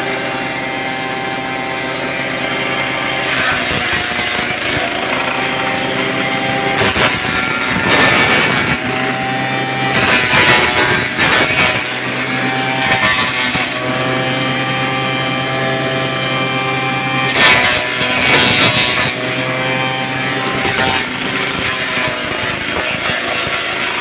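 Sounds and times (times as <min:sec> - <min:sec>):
small engine running: 0:00.0 - 0:24.0
noisy burst: 0:02.6 - 0:13.8.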